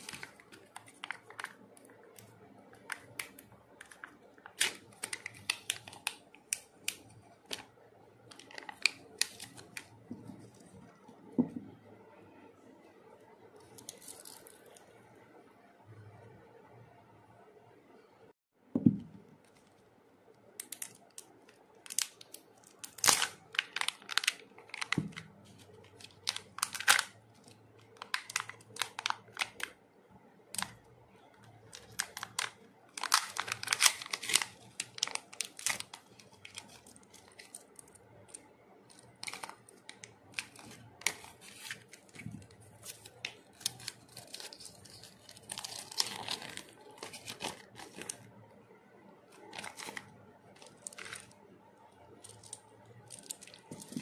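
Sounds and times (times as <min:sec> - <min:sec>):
plastic packaging crinkling: 0:00.0 - 0:07.7, 0:08.3 - 0:10.9, 0:13.6 - 0:14.8, 0:20.6 - 0:29.8, 0:31.4 - 0:48.4, 0:49.3 - 0:51.4, 0:52.1 - 0:54.0
paper leaflet rustling: 0:39.2 - 0:48.2.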